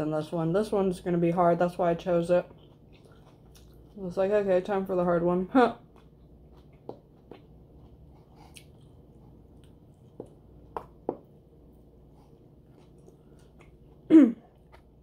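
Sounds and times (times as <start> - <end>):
close-up chewing: 2.3 - 4.1, 5.8 - 11.0, 11.8 - 15.0.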